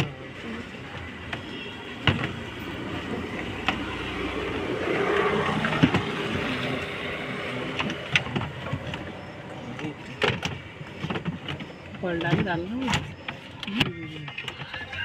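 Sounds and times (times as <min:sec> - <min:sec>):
sharp knocks on plastic: 0:01.2 - 0:02.5.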